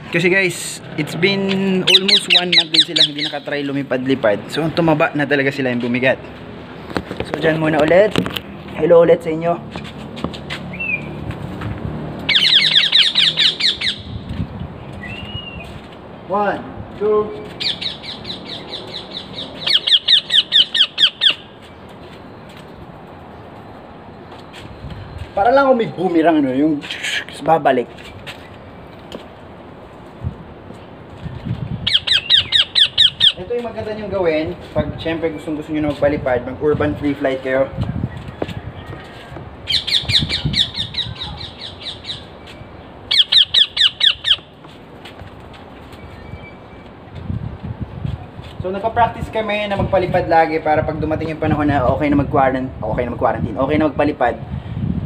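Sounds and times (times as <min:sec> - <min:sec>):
parrot squawks: 0:01.9 - 0:03.4, 0:12.3 - 0:14.1, 0:17.6 - 0:21.5, 0:31.9 - 0:33.4, 0:39.7 - 0:42.3, 0:43.1 - 0:44.5.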